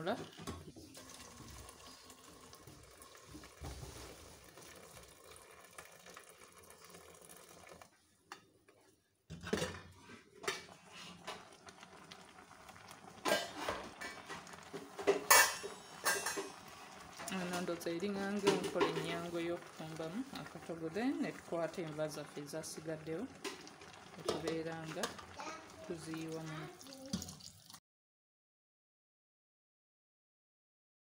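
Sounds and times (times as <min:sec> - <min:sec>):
water running out: 0:00.0 - 0:07.9, 0:10.8 - 0:27.8
metal pot and lid clanking: 0:13.1 - 0:16.8.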